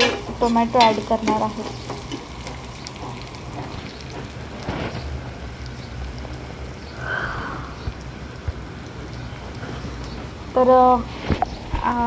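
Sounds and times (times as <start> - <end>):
louder hiss of frying: 0.0 - 12.0
vegetables sizzling in oil: 0.0 - 12.0.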